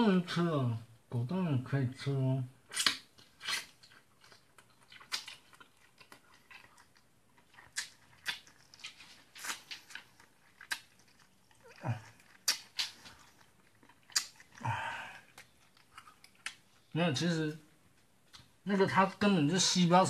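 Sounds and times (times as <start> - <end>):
chewing with mouth smacks: 2.7 - 16.9.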